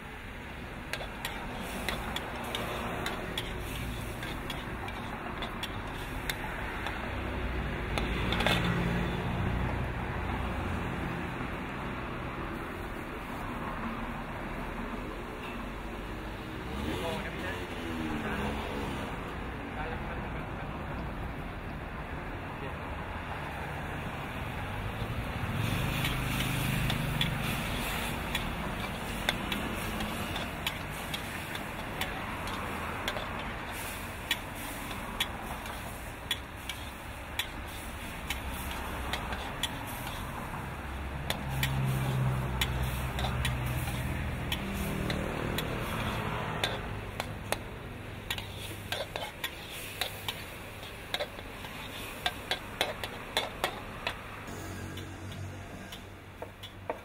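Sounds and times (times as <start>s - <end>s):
food sizzling: 0.0s - 11.8s, 23.4s - 57.0s
spatula scraping and clinking on wok: 0.9s - 7.2s, 7.9s - 9.2s, 25.5s - 57.0s.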